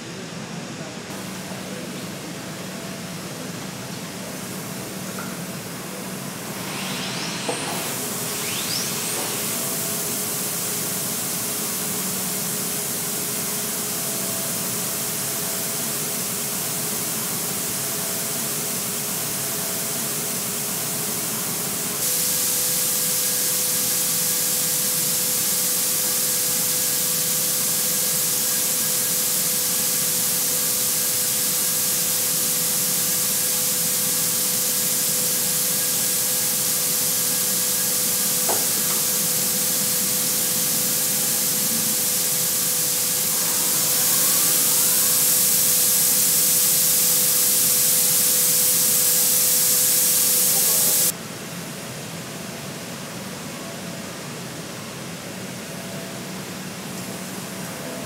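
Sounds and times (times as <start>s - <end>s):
paint booth spray hiss: 1.1s - 51.2s
faint steady hum: 21.2s - 51.6s.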